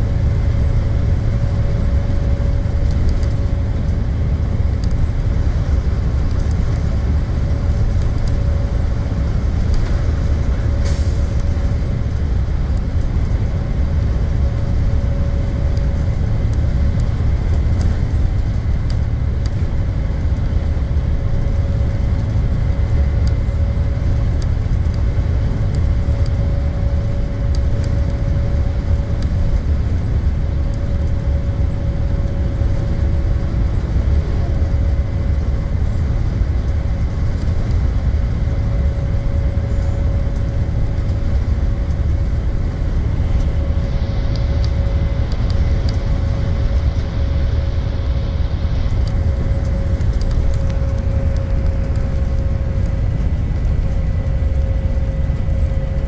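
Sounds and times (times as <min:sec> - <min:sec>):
bus engine and road rumble: 0:00.0 - 0:56.0
constant whine: 0:00.0 - 0:56.0
hiss: 0:10.8 - 0:11.4.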